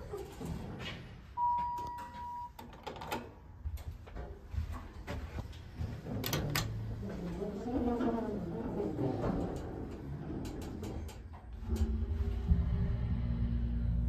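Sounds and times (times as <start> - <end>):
elevator electronic beep: 1.4 - 2.6.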